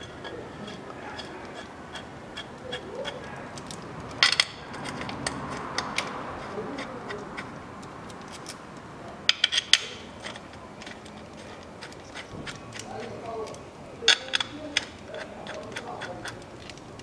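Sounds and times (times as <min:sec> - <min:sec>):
metal bolts clinking: 0:03.1 - 0:06.1, 0:09.3 - 0:13.2.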